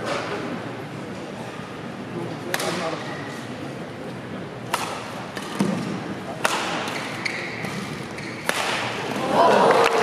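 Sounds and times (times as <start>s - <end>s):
rackets striking shuttlecock: 4.7s - 9.0s
murmur of crowd: 8.9s - 10.0s.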